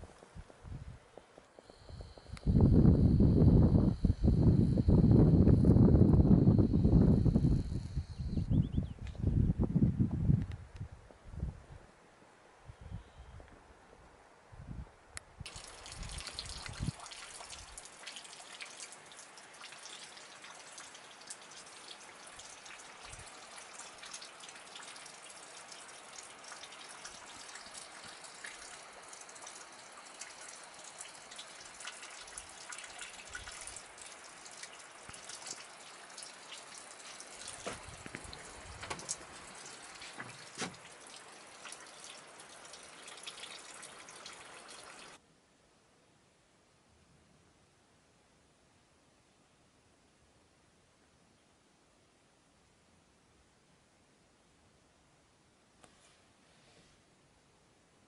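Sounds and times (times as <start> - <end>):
sleet and rain hissing: 15.5 - 45.2.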